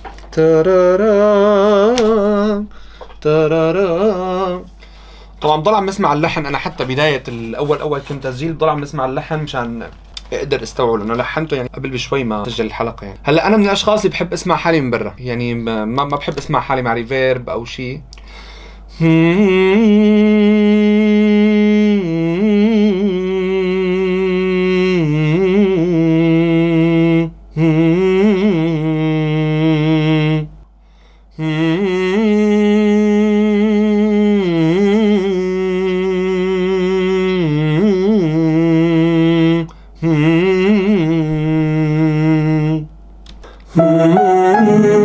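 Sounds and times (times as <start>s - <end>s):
man humming a melody: 43.8s - 45.0s.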